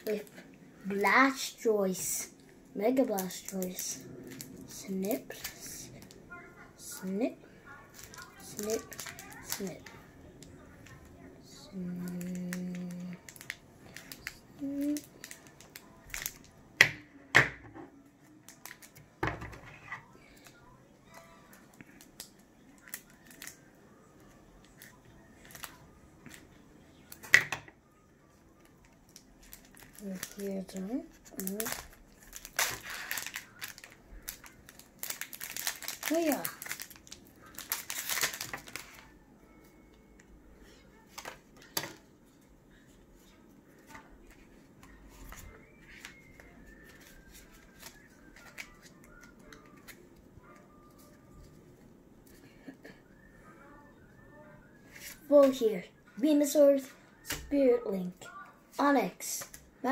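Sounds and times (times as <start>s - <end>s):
foil pack crinkling: 7.9s - 10.6s, 11.7s - 16.5s, 28.8s - 39.1s, 44.8s - 50.0s
soft card rustling: 7.9s - 11.1s, 28.6s - 52.4s.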